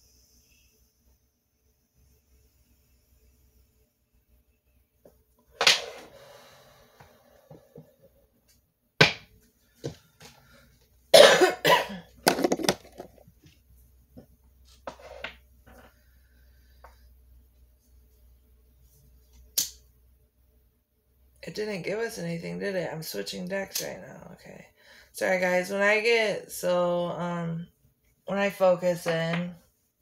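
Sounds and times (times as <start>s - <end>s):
person coughing: 11.1s - 12.1s.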